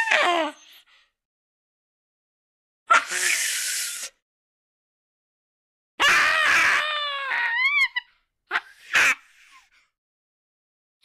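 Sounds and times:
cartoon hissing burst: 0:03.0 - 0:04.1.

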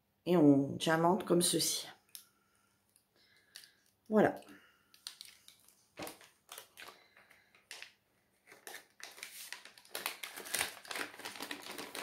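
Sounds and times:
plastic pens clicking together: 0:02.9 - 0:05.6.

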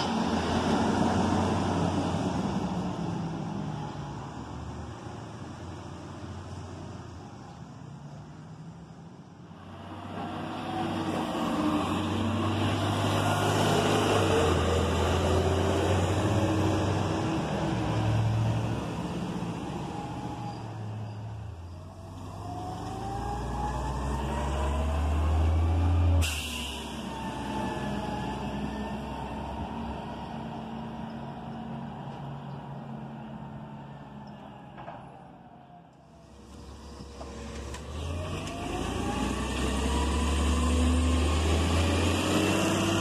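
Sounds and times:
garbage truck diesel engine revving: 0:09.6 - 0:21.0, 0:21.9 - 0:32.0, 0:36.5 - 0:43.0.

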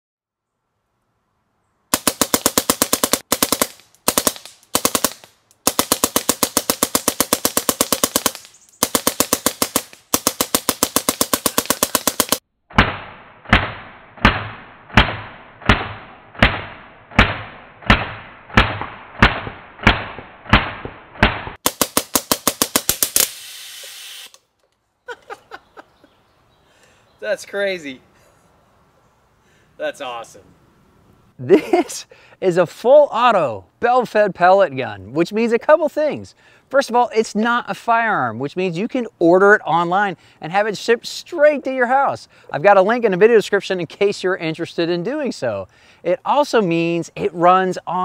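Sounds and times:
air gun firing rapid bursts: 0:02.0 - 0:12.4, 0:17.2 - 0:24.3.

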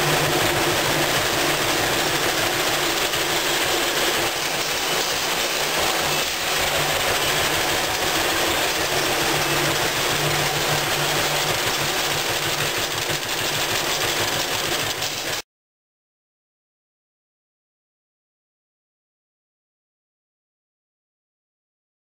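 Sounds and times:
tractor engine running: 0:00.0 - 0:15.4.

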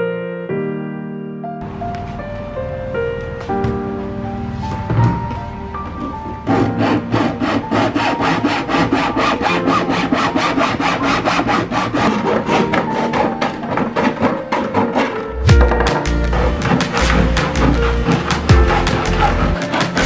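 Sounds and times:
hacksaw cutting plastic: 0:06.0 - 0:20.0.

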